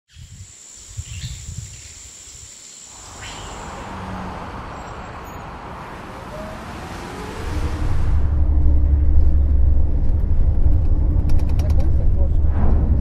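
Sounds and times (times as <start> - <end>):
road traffic noise: 2.9 - 12.6
low rumble: 7.4 - 13.0.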